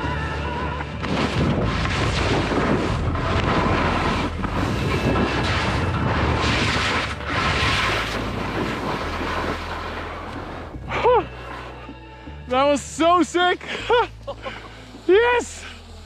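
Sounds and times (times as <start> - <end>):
wind rushing over microphone: 1.0 - 10.9
skis hissing through snow: 1.2 - 11.8, 13.0 - 16.0.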